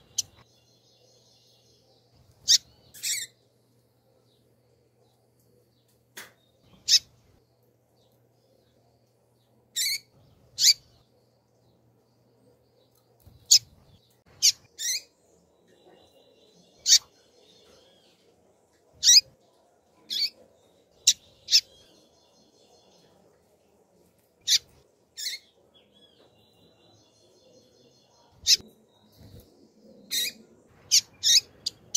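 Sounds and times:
bird peeping: 0.0 - 0.4, 2.2 - 3.4, 6.6 - 7.1, 15.7 - 18.2, 19.0 - 19.3, 24.4 - 31.9.

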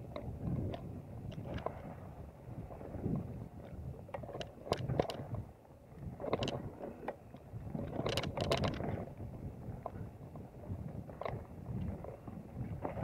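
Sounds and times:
wind buffeting microphone: 0.0 - 13.0
bike rattling over bumps: 3.0 - 13.0.

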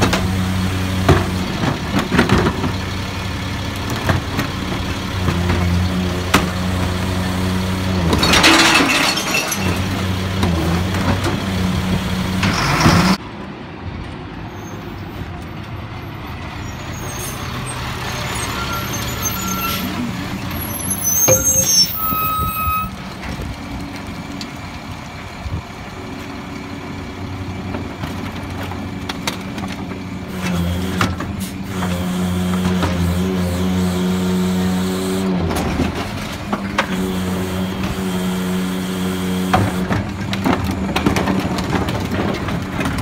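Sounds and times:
cart dumping clatter: 0.0 - 3.0, 3.8 - 13.2, 39.3 - 43.0
garbage truck engine: 0.0 - 14.0, 15.2 - 43.0
air brake squeal and hiss: 14.5 - 15.3, 16.6 - 23.0.

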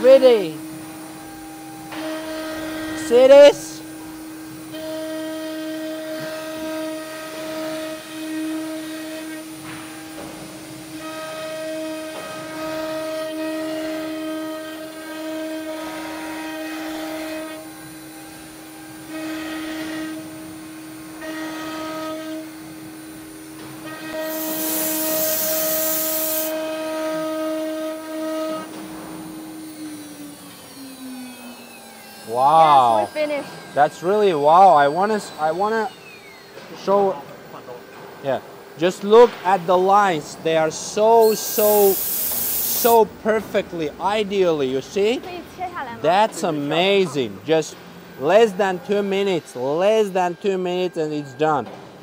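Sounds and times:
wood cutting noise: 1.7 - 37.7, 38.8 - 45.2
router spindle whine: 10.7 - 37.2, 41.0 - 43.1
loud hiss: 24.1 - 26.7, 41.1 - 43.2
higher machine tone: 28.7 - 37.2, 40.8 - 51.7.

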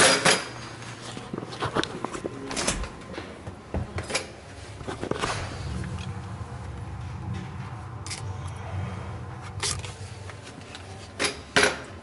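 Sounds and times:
knocks and clatters of tools: 0.0 - 0.6
low steady hum: 0.4 - 12.0.

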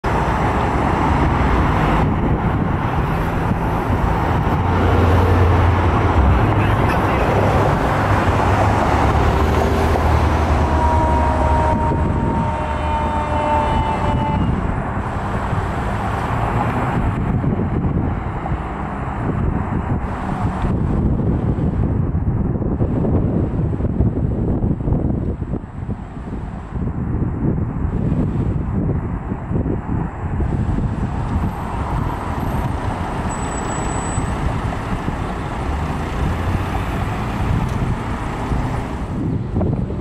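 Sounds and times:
fire engine diesel engines: 0.0 - 40.0
road traffic: 0.0 - 40.0
two-note horn blast: 10.5 - 14.6.

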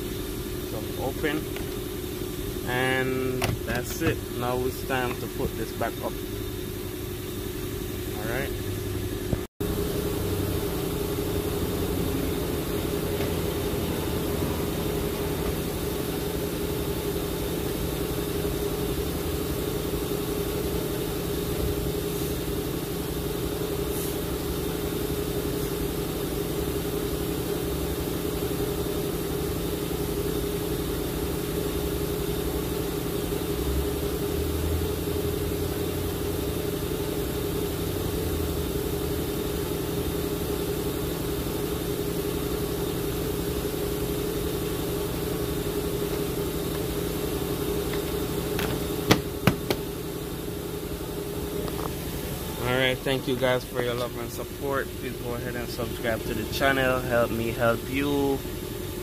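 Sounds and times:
car engine idling: 0.2 - 26.0, 42.3 - 59.0.

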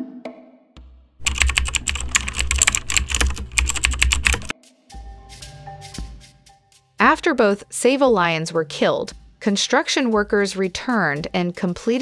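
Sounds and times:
keyboard keystroke clicks: 1.2 - 4.5.

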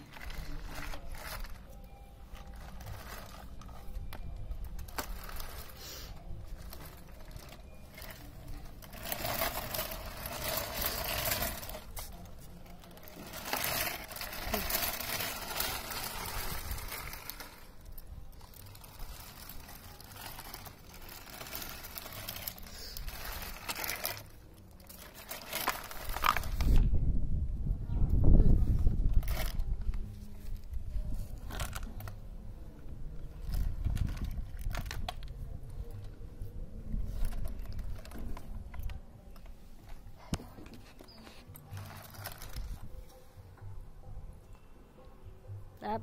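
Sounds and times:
baby walker wheels rattling on concrete: 6.5 - 17.9.

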